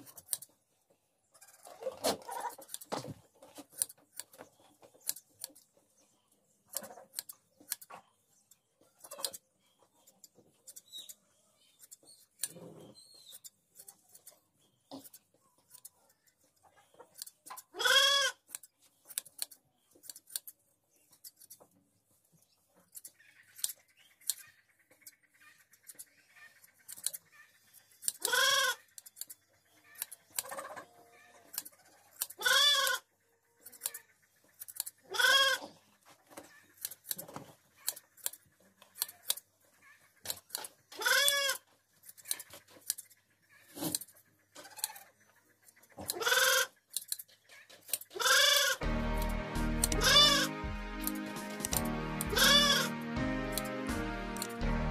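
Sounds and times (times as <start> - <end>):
hand shears snipping wool: 2.0 - 5.7, 18.4 - 21.7, 51.0 - 52.4, 53.5 - 54.6
sheep bleating: 49.9 - 50.5, 52.2 - 52.9.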